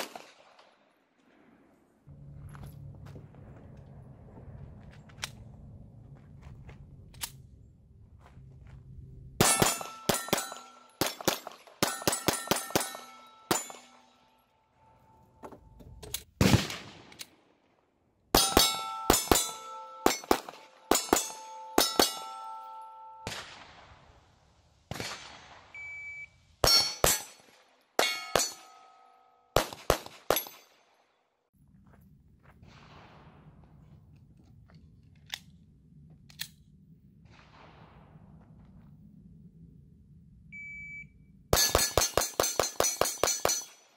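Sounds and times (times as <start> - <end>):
pistol shots: 0.0 - 0.9, 9.4 - 14.1, 18.3 - 23.8, 26.6 - 28.9, 29.6 - 30.9, 41.6 - 43.8
steel targets ringing: 9.4 - 15.4, 18.4 - 23.3, 26.6 - 27.4, 28.0 - 29.6, 41.6 - 43.9.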